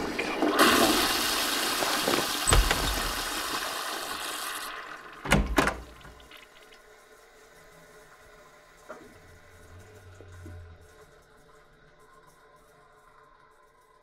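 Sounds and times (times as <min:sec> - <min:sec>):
toilet flushing: 0:00.0 - 0:06.7
door shutting thuds: 0:02.4 - 0:03.4, 0:05.2 - 0:06.0.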